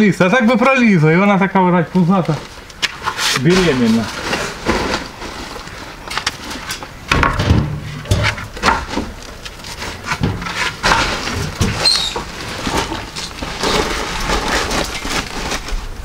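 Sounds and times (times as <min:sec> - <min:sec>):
wooden boards knocking: 0:07.1 - 0:09.2.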